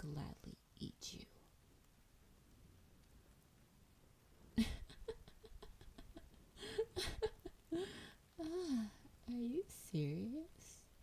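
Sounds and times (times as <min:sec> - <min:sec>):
woman laughing: 0:04.6 - 0:09.0.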